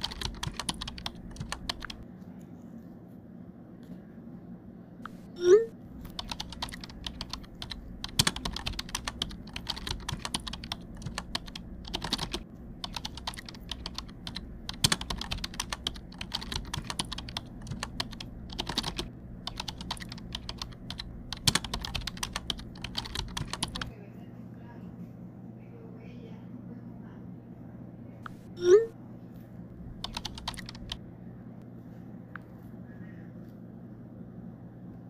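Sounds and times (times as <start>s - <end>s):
rapid keyboard typing: 0.0s - 2.1s, 5.9s - 23.9s, 29.8s - 31.0s.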